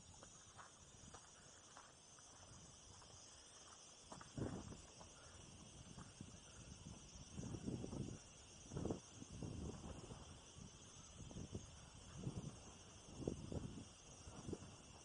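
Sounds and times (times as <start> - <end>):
footsteps on gravelly ground: 0.1 - 5.2.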